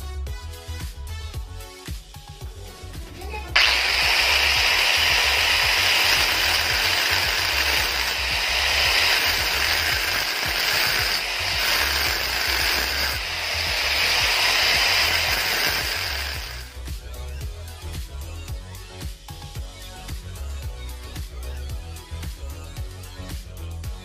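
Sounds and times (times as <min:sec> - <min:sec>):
background music with low beat: 0:00.0 - 0:24.0
angle grinder cutting steel: 0:03.2 - 0:16.8.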